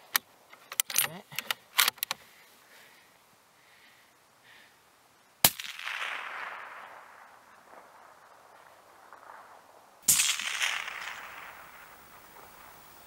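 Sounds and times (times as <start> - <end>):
rifle shot with echo: 5.4 - 12.8.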